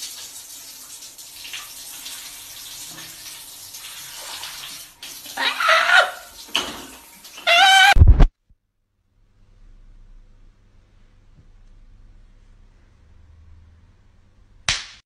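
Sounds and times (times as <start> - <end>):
shower water running: 0.0 - 8.0
high-pitched shriek: 7.4 - 8.1.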